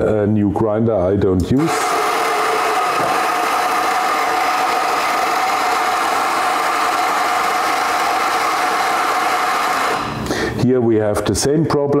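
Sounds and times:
coffee grinder whirring: 1.6s - 10.4s.

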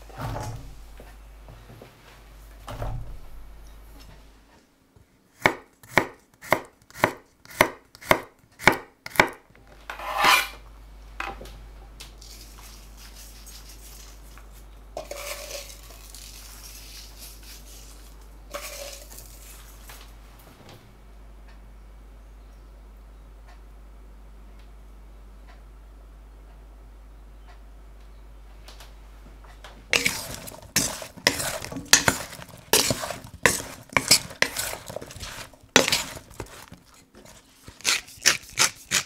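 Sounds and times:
potatoes clattering into metal pan: 15.0s - 19.6s, 30.0s - 39.0s.

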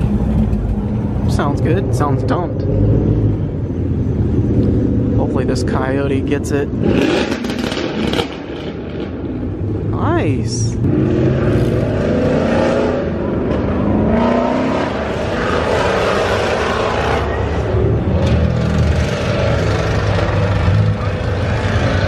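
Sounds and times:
car engines revving: 0.0s - 22.0s.

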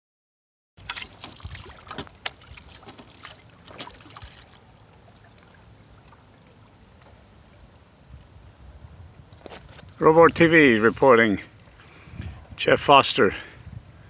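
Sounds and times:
water splashing against boat: 0.8s - 8.4s.

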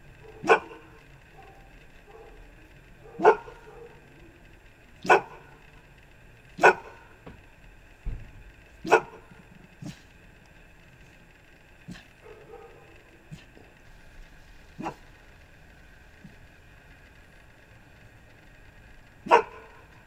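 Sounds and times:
dog barking: 0.2s - 4.2s, 5.0s - 5.7s, 6.6s - 7.2s, 8.8s - 10.1s, 11.9s - 13.7s, 14.8s - 15.2s, 19.2s - 19.9s.

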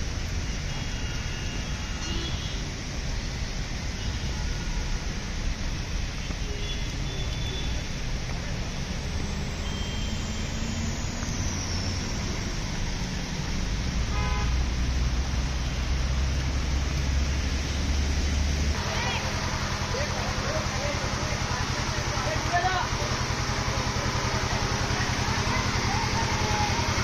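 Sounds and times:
rain and water spray hiss: 0.0s - 27.0s
vehicle engines rumbling: 0.0s - 27.0s
horn beep: 9.6s - 11.0s.

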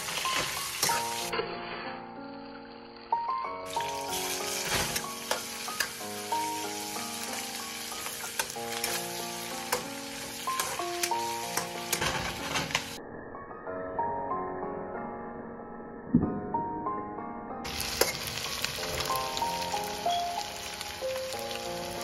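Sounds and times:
food sizzling in a wok: 0.0s - 13.0s, 17.7s - 22.0s
background music with held notes: 0.0s - 22.0s.

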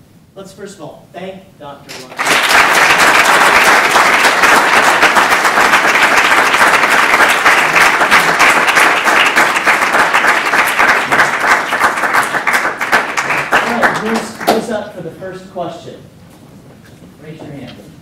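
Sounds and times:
audience applauding: 1.9s - 14.7s.

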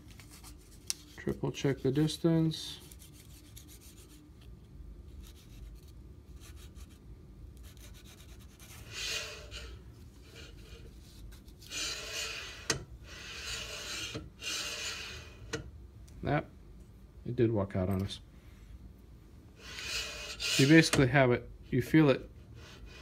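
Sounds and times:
paper scraping through gap: 11.6s - 15.4s, 19.6s - 21.0s.

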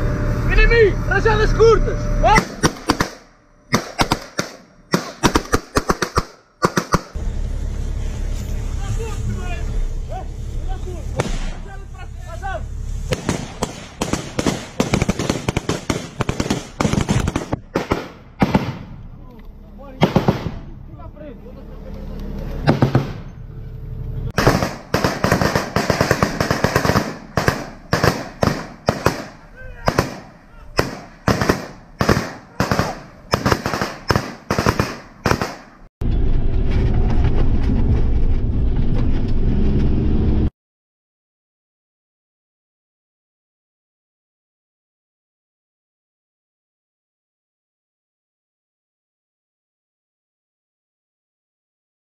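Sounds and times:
vehicle engine running: 0.0s - 4.9s, 7.0s - 33.4s, 36.0s - 40.5s
rapid gunfire: 2.4s - 7.2s, 13.1s - 18.9s, 20.0s - 20.6s, 22.7s - 23.2s, 24.4s - 35.9s.

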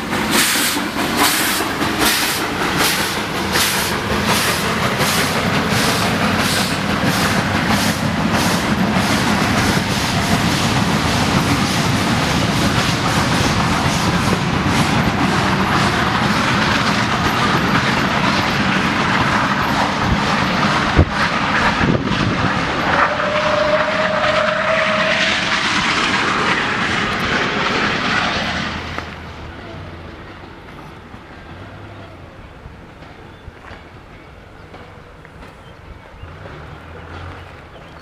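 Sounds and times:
train coaches rolling on track: 0.0s - 38.0s.

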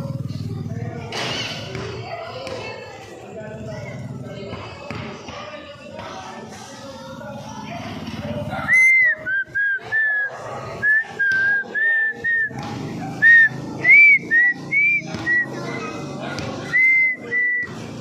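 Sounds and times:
crowd chatter: 0.0s - 18.0s
person whistling a tune: 8.7s - 12.5s, 13.2s - 15.5s, 16.8s - 17.7s.

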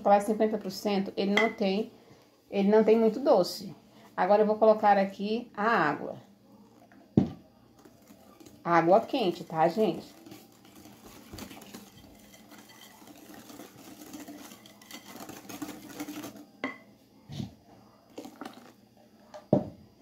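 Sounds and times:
whisk clattering in glass bowl: 9.7s - 16.4s.

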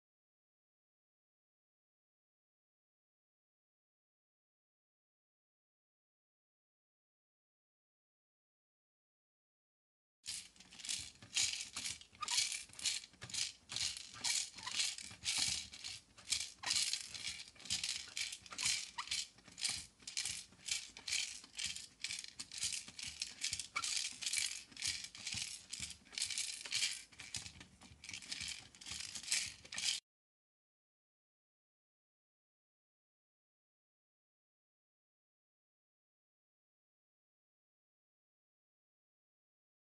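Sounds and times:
rhythmic rattling: 10.3s - 30.0s.

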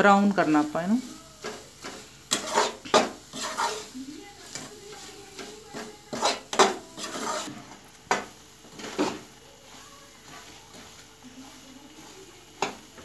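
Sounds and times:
metal spatula scraping steel pan: 0.3s - 13.0s.

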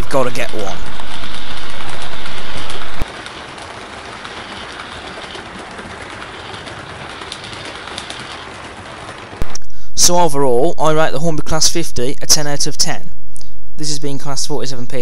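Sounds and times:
model train running on track: 0.0s - 9.4s
wheels clicking on rails: 0.0s - 9.4s.

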